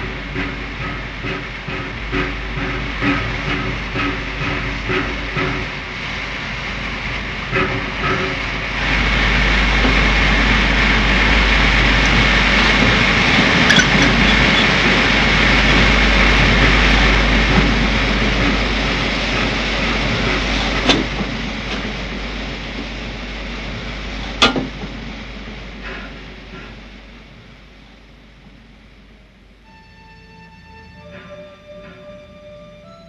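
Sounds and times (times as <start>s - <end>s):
steam locomotive hissing: 0.0s - 33.0s
sharp metal clanks: 13.7s - 14.4s.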